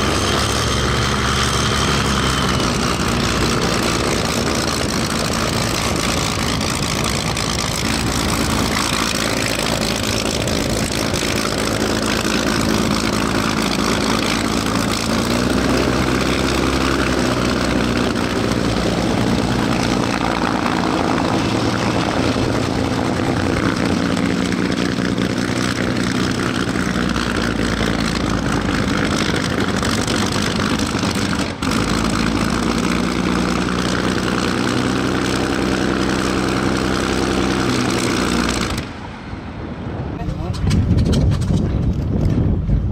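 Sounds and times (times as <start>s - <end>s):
propeller plane engine droning: 0.0s - 42.9s.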